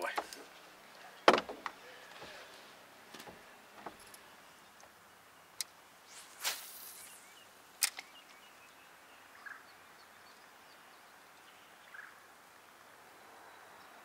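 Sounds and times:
fishing rod whooshing: 6.1s - 7.3s
sharp click: 7.8s - 8.1s.

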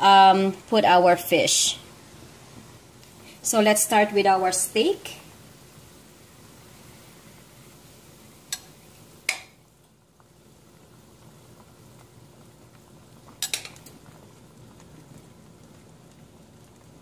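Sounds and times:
soup bubbling at a boil: 0.0s - 17.0s
utensil clinking on metal pot: 13.4s - 13.9s.

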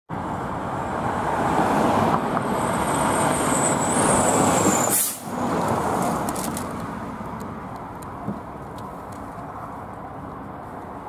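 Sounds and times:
truck driving past: 0.1s - 6.3s.

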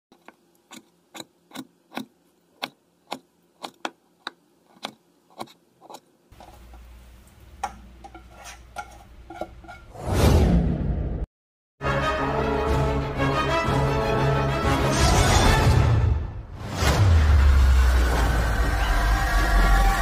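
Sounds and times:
spatula scraping bowl and pan: 7.6s - 10.0s.

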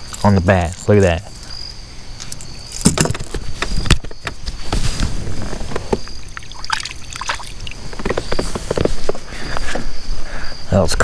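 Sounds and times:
crickets chirring: 0.0s - 11.0s
light water sounds: 6.3s - 7.9s.

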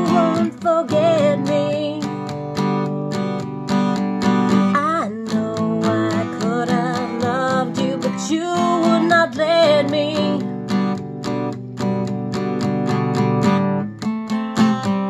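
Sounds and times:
woman singing: 0.0s - 3.0s, 4.2s - 10.7s
acoustic guitar strumming: 0.0s - 15.0s.

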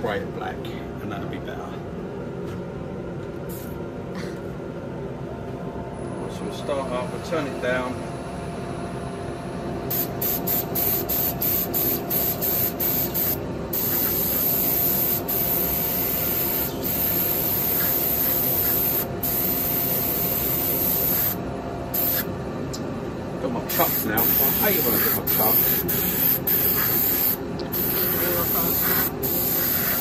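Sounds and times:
machine hum: 0.0s - 30.0s
spray paint hissing: 9.9s - 21.4s, 22.0s - 22.3s, 23.7s - 30.0s.

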